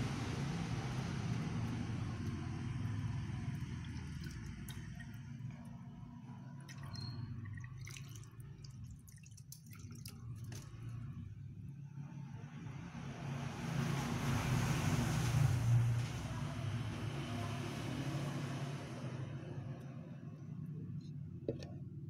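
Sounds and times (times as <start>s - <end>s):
water dripping and trickling: 0.0s - 11.3s.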